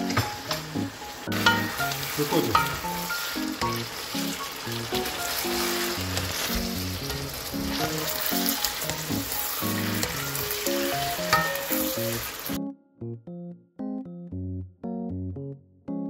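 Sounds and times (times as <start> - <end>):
food sizzling in a wok: 0.0 - 12.6
soft piano music: 0.0 - 16.0
wooden spatula stirring: 1.4 - 11.5.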